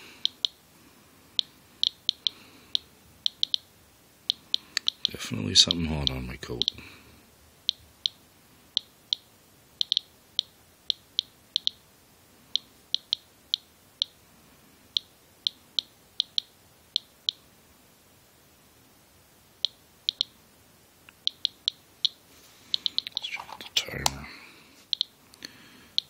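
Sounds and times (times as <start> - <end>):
geiger counter clicking: 0.2 - 0.6, 1.4 - 3.7, 4.3 - 6.8, 8.8 - 11.8, 12.6 - 14.2, 14.9 - 17.4, 19.6 - 20.4, 21.1 - 22.2, 22.8 - 24.2, 24.9 - 25.2.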